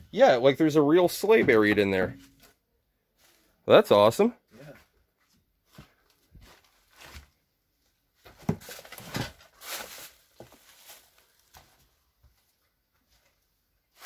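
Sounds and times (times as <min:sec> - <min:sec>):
footsteps scuffing on debris: 0:05.2 - 0:07.4, 0:09.6 - 0:12.5.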